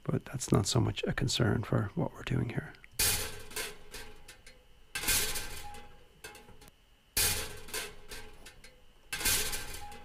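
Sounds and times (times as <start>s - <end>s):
metal grill banging: 3.0s - 10.0s.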